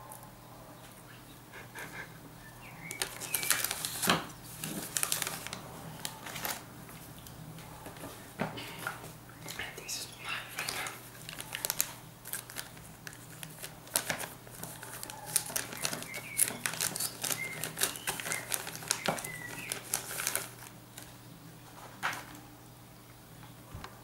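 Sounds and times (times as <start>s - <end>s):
plastic bag crinkling: 2.8s - 6.7s, 10.4s - 21.2s.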